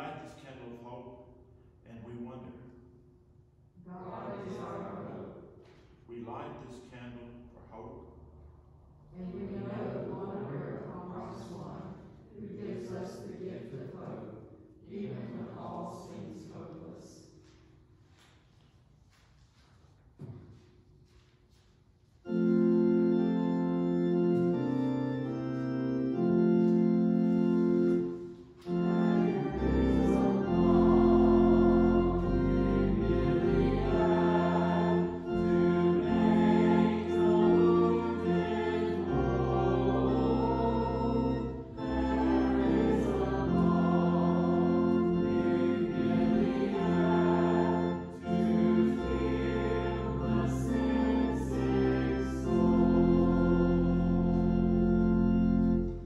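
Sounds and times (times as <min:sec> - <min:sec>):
church organ chords: 0:00.0 - 0:01.3, 0:03.8 - 0:05.4, 0:09.2 - 0:14.3, 0:22.1 - 0:56.0
deep organ pedal bass notes: 0:03.9 - 0:05.2, 0:22.3 - 0:56.0.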